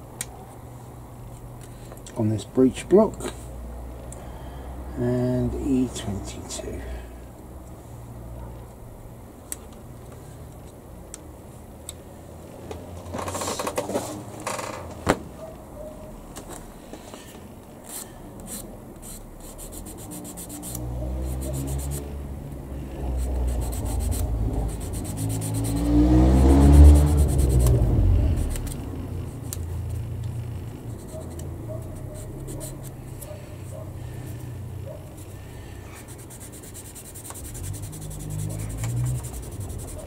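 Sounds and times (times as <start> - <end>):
rubbing and scraping plastic: 13.1 - 14.3
low rumble: 26.5 - 30.8.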